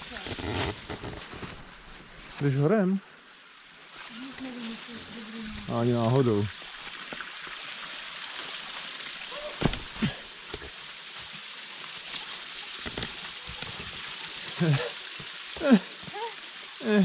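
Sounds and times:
footsteps in dry leaves: 0.0s - 2.7s, 3.8s - 5.6s, 10.8s - 14.7s
small stream hissing: 0.0s - 17.0s.

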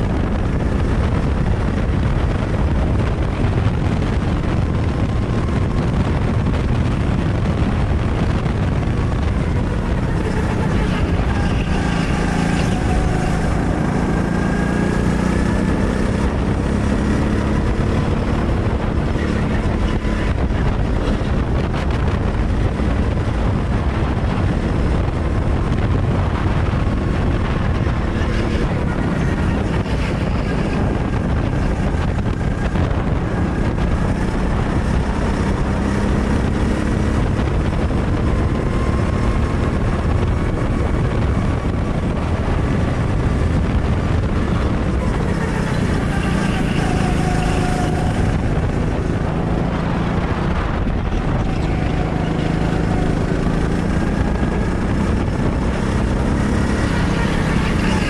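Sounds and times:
go-kart engine running hard: 0.0s - 58.0s
steady rush of noise: 0.0s - 58.0s.

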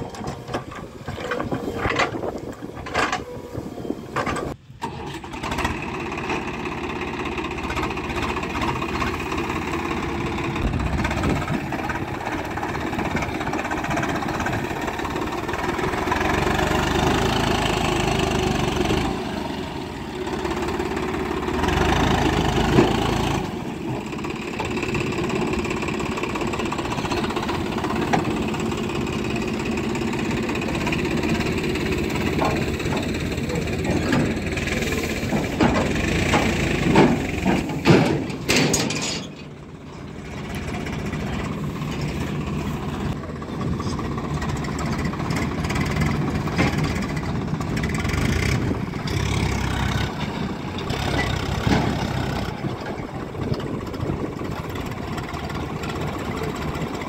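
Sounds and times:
tractor diesel engines running: 0.0s - 57.0s
loud knocks and clatters: 35.2s - 39.5s.

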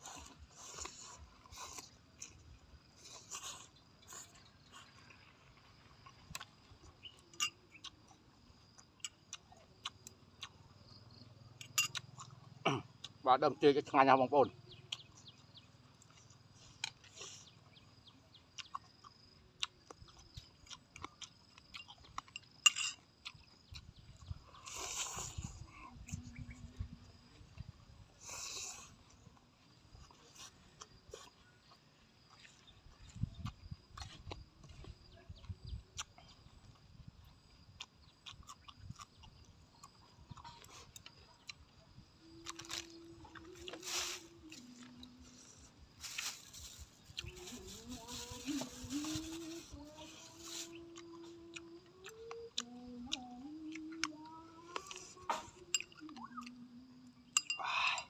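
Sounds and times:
man chewing: 0.0s - 11.0s, 11.6s - 13.2s, 16.0s - 49.8s, 50.6s - 56.6s
low hummed tone: 47.3s - 57.6s.

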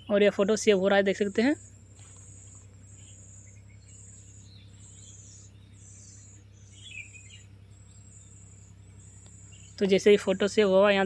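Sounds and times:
crickets chirping: 0.0s - 11.0s
low steady hum: 0.0s - 11.0s.

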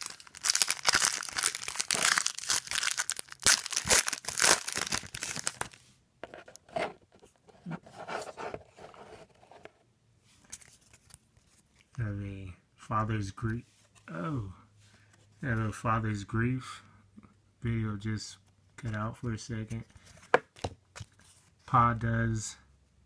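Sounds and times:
foil wrapper tearing and crinkling: 0.0s - 5.8s.

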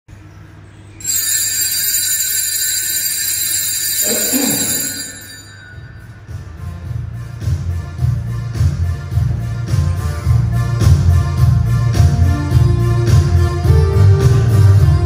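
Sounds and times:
bells ringing: 1.0s - 6.6s.

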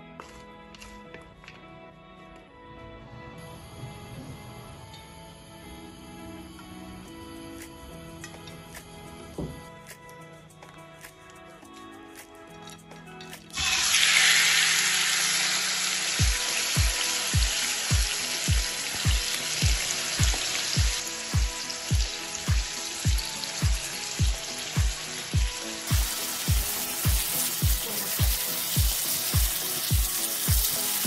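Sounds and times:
background music with steady beat: 0.0s - 31.0s
chicken sizzling in hot oil: 13.5s - 31.0s.

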